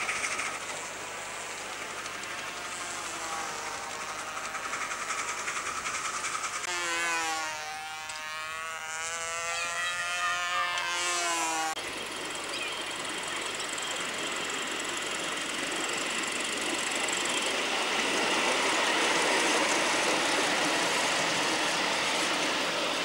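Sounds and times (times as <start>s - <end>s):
steam locomotive exhaust beats: 0.0s - 6.7s, 11.8s - 23.0s.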